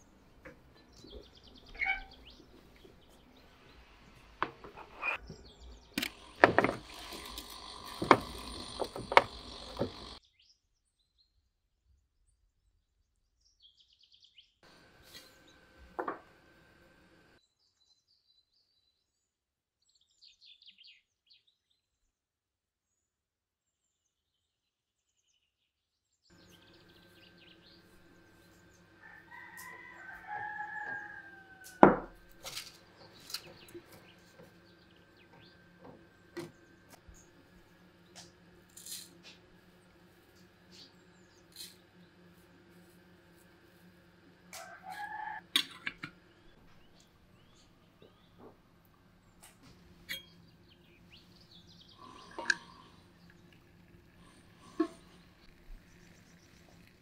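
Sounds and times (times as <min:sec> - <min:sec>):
birds chirping: 0:00.0 - 0:10.2, 0:26.3 - 0:31.6, 0:32.8 - 0:38.4, 0:46.2 - 0:57.0
rooster crowing: 0:29.0 - 0:32.2, 0:44.4 - 0:45.6.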